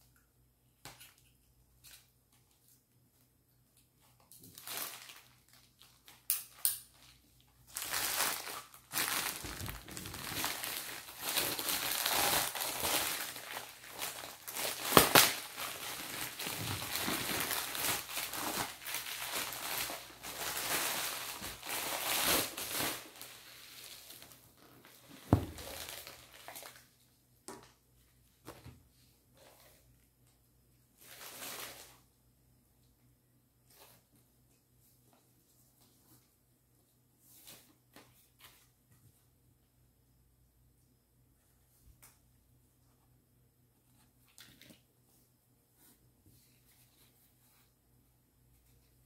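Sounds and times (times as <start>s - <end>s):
plastic mailer bag crinkling: 7.7s - 26.9s.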